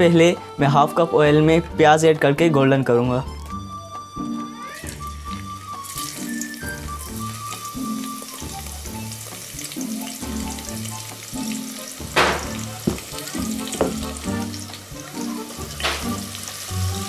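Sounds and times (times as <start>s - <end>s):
background music with beat: 3.1s - 17.0s
onions sizzling in hot oil: 4.7s - 17.0s.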